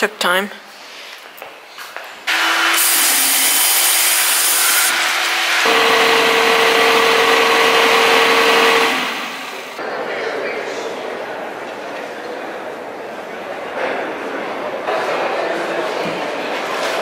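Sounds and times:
electric hand dryer blowing: 2.3s - 9.8s.

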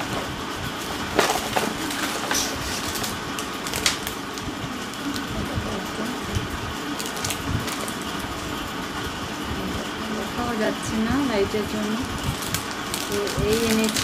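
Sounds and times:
plastic packets crinkling: 0.0s - 5.4s, 6.8s - 8.3s, 12.2s - 14.0s
paper bag rustling: 0.0s - 6.2s, 6.8s - 8.4s, 11.7s - 14.0s
steady background hum: 0.0s - 14.0s.

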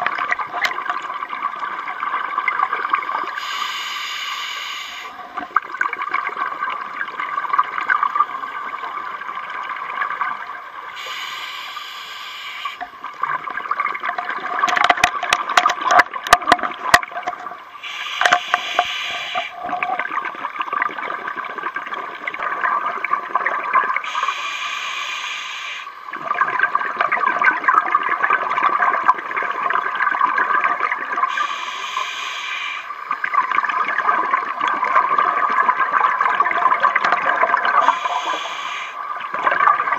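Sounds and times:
regulator hissing inhalations: 3.4s - 5.2s, 11.0s - 12.8s, 17.8s - 19.6s, 24.0s - 26.0s, 31.3s - 33.0s, 37.8s - 39.0s.

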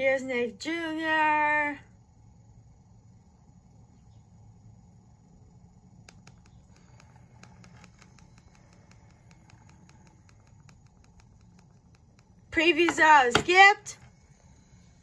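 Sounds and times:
faint irregular clicks: 6.0s - 12.6s.

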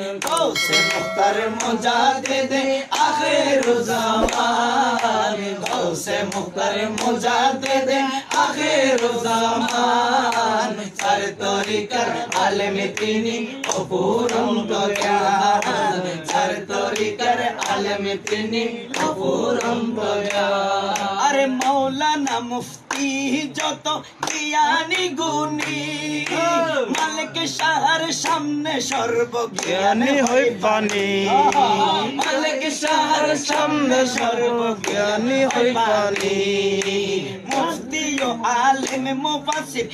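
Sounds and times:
hand claps: 0.0s - 39.9s
men's voices singing along: 0.0s - 39.9s
man singing: 20.1s - 39.9s.

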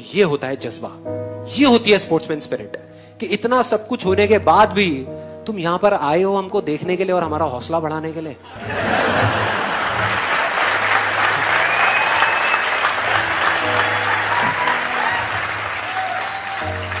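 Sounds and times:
background music: 0.0s - 17.0s
audience applauding: 8.6s - 17.0s.

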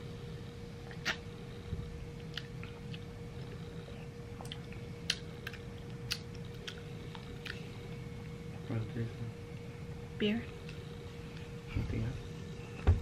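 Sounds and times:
faint steady hum: 0.0s - 13.0s
wet mouth clicks and lip smacks: 4.4s - 6.8s.

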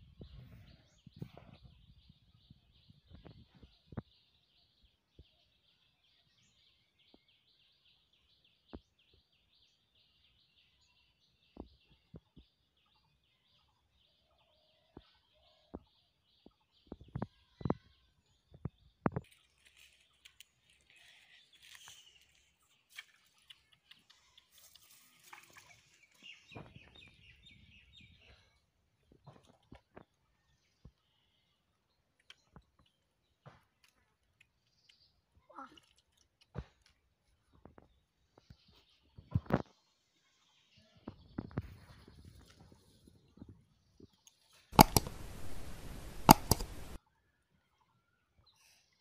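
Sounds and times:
faint bird chirping: 0.0s - 33.4s.

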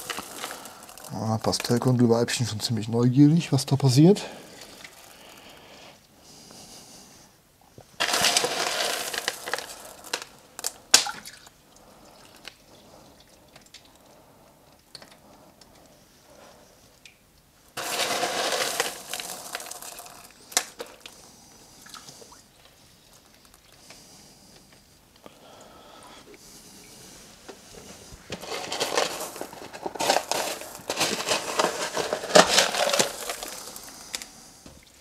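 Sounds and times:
small stones clicking: 0.0s - 1.9s, 8.0s - 11.3s, 17.8s - 21.2s, 28.3s - 34.4s
gravel pouring hiss: 0.0s - 6.0s, 8.0s - 10.8s, 17.8s - 21.5s, 27.8s - 34.7s.

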